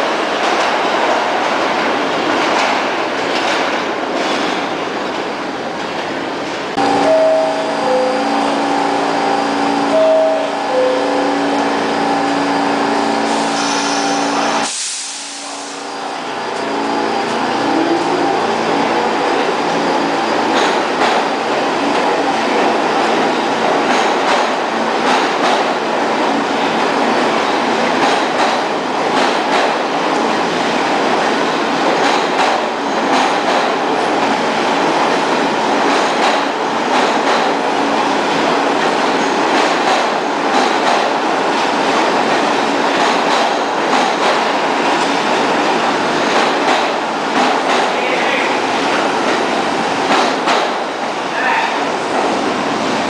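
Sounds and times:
subway train rumbling past: 0.0 - 53.0
wheels clacking over rail joints: 31.9 - 33.8, 35.8 - 37.6, 38.3 - 45.2, 46.2 - 48.4, 49.2 - 50.8.

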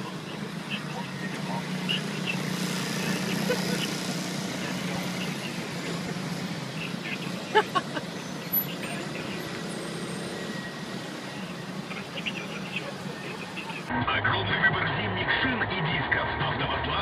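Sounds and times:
vehicle engines humming: 0.0 - 17.0.

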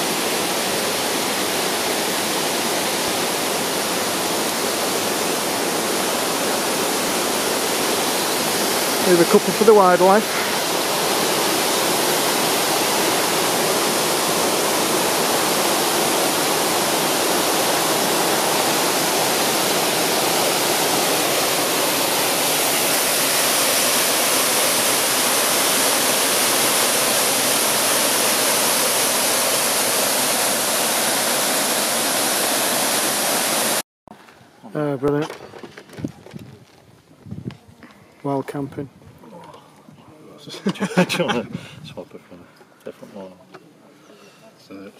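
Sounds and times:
stream rushing over boulders: 0.0 - 33.8.

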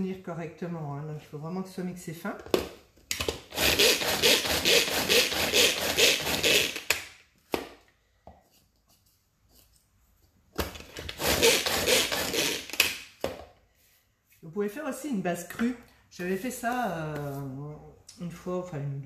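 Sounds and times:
hand chopper grinding biscuits: 3.5 - 7.0, 11.0 - 12.9.

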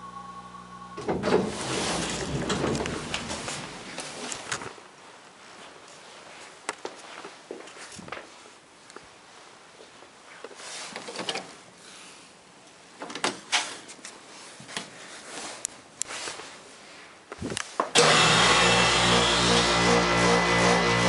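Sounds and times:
loud steady hum with drone: 0.0 - 1.1, 18.0 - 21.0.

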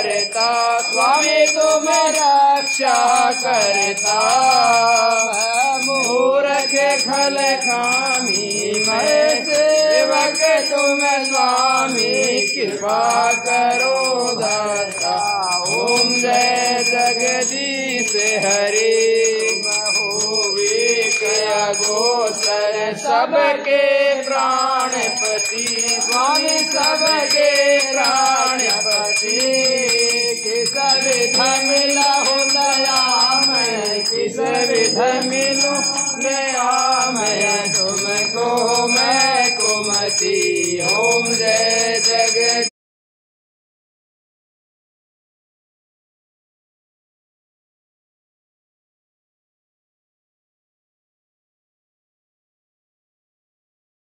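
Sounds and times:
high ringing tone: 0.0 - 22.8, 23.9 - 42.7.

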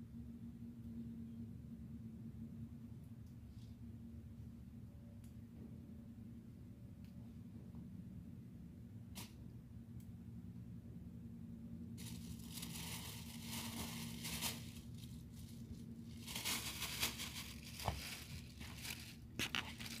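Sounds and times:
faint low hum: 0.0 - 20.0
plastic bag crinkling: 12.0 - 20.0.

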